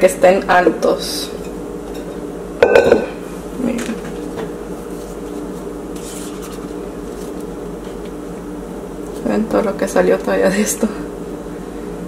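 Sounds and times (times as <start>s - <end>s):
steady low hum: 0.0s - 12.0s
spatula scraping batter: 4.9s - 8.1s.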